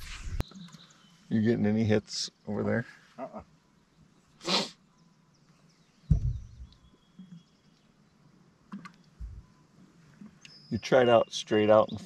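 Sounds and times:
short rush of noise: 0.0s - 0.4s
faint bird chirps and whistles: 0.0s - 1.6s, 3.2s - 8.0s, 8.8s - 12.0s
dull thump: 6.1s - 6.7s.

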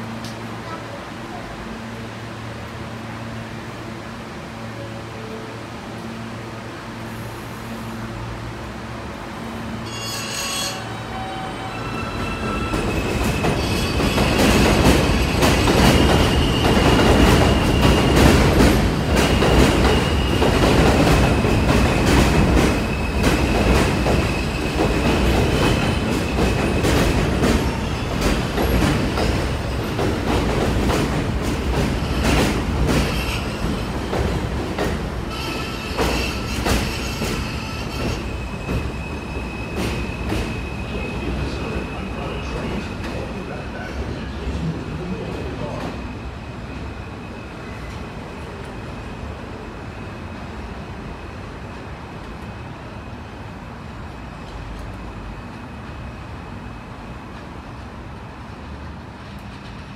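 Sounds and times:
train rumble on elevated track: 0.0s - 59.9s
high-pitched wheel squeal: 9.8s - 14.4s.

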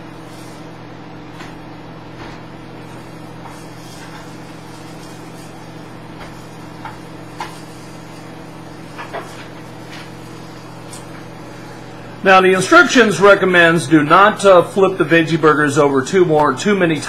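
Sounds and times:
microwave oven humming: 0.0s - 17.0s
faint frying in a pan: 2.7s - 11.9s.

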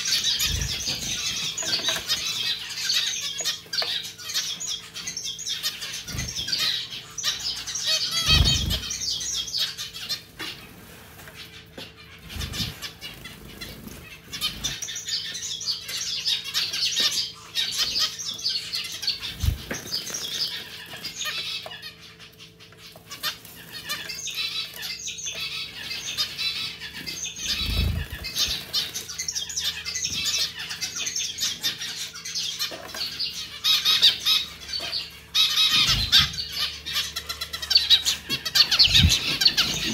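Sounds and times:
birds splashing and fluttering: 8.1s - 9.0s, 19.2s - 21.5s.

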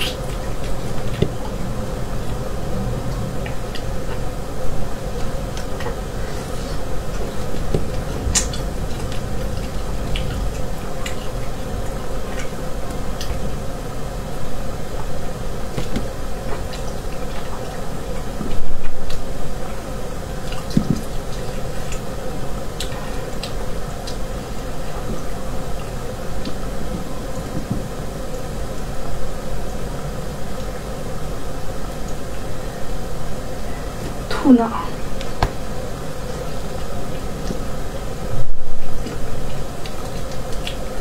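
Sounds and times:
steady hum: 0.0s - 41.0s
wet chewing and smacking: 5.2s - 13.4s, 39.0s - 41.0s.

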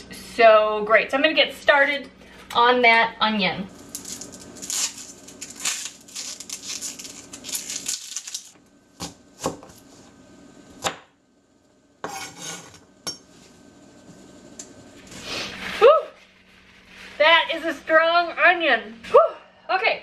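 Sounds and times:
onion skin rustling: 3.7s - 8.6s, 15.0s - 17.9s.

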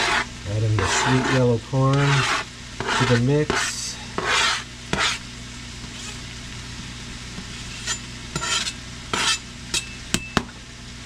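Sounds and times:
scraping on plastic cutting board: 0.0s - 5.2s, 5.9s - 6.2s, 7.4s - 9.4s
meat and onion sizzling in a skillet: 0.0s - 11.0s.

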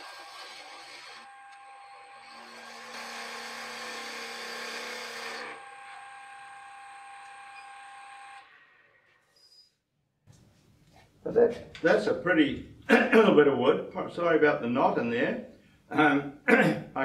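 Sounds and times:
tool scraping spinning wood: 0.0s - 1.3s
lathe motor whine: 0.0s - 8.5s.

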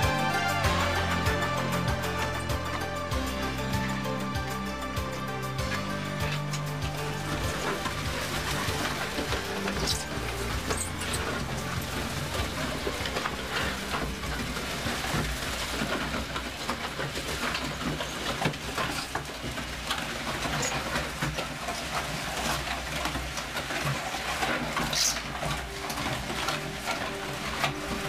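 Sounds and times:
concrete mixer churning: 0.0s - 28.0s.

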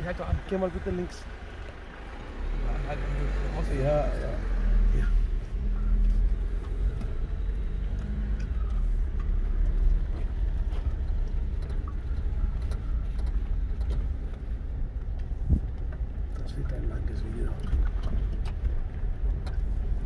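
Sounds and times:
vehicle engine and tyre rumble: 0.0s - 20.0s.

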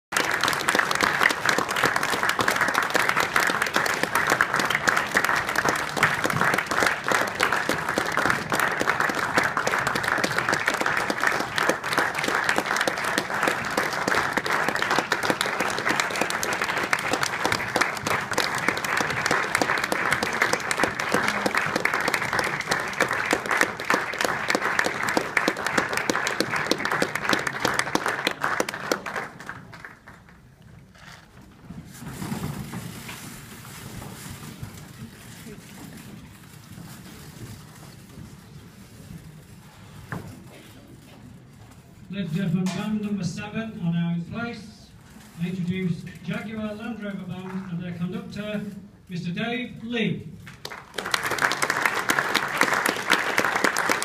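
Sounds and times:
audience applauding: 0.0s - 30.6s, 50.5s - 54.0s.

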